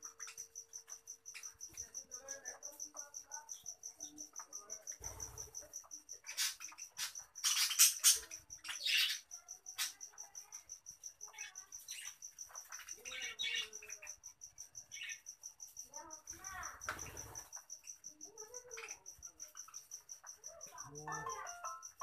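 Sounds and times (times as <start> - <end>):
budgerigars chattering and squawking: 6.2 - 10.1.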